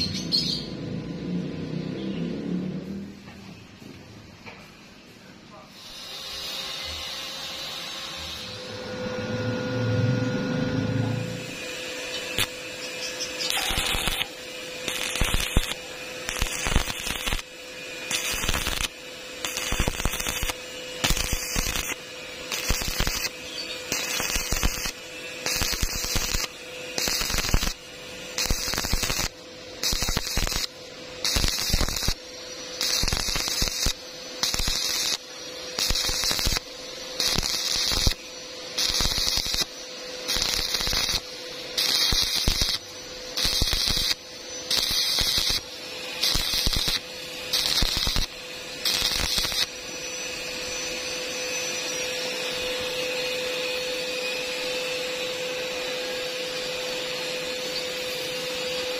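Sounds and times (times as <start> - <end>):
steady hum: 0.0 - 58.9
welding arc crackling and hissing: 5.6 - 9.9, 10.7 - 58.9.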